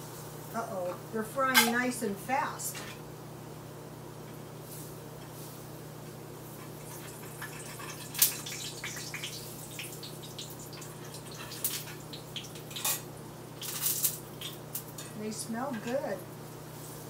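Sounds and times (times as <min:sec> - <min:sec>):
fritters sizzling in a skillet: 0:06.6 - 0:17.0.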